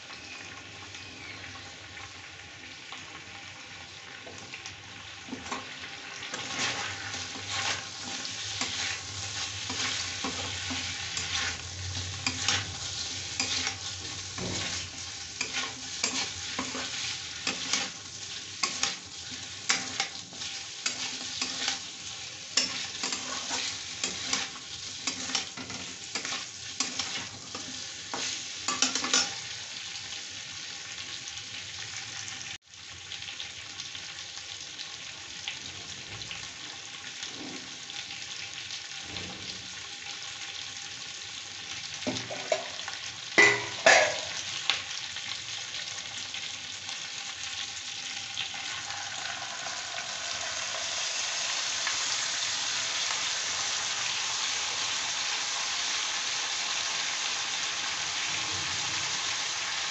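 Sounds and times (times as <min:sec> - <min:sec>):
chicken sizzling in hot oil: 0:00.0 - 0:59.9
spatula scraping a pan: 0:05.3 - 0:29.5.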